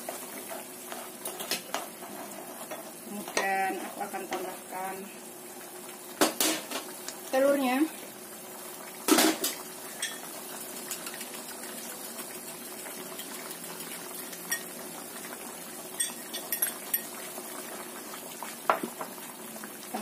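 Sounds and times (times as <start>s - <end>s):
soup simmering hiss: 0.0s - 20.0s
utensil clinking on cookware: 9.2s - 10.3s, 14.5s - 14.7s, 16.0s - 17.2s.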